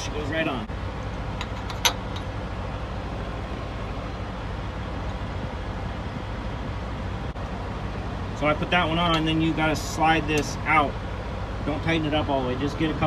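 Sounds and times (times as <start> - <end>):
truck engines idling: 0.0 - 13.0.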